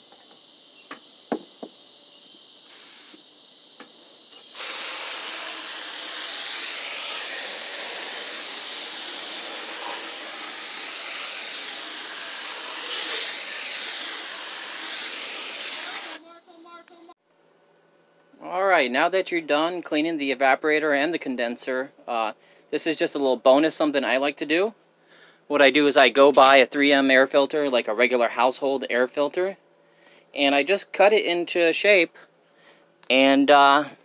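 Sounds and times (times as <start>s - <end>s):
hose nozzle spraying water: 2.7s - 3.2s, 4.5s - 16.2s.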